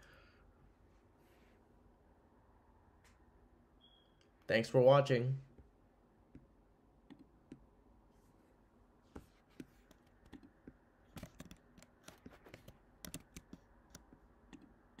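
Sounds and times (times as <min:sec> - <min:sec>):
fingers clicking and tapping keys: 0:09.8 - 0:14.7.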